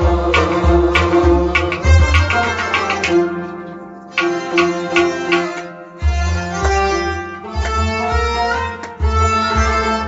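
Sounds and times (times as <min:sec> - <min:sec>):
hand drum beat: 0:00.0 - 0:03.4, 0:04.2 - 0:05.7
bowed and plucked strings: 0:00.0 - 0:10.0
harmonium: 0:00.0 - 0:10.0.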